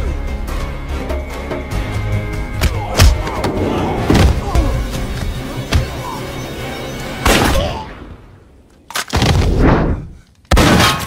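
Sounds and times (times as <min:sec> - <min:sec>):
dramatic score music: 0:00.0 - 0:08.7.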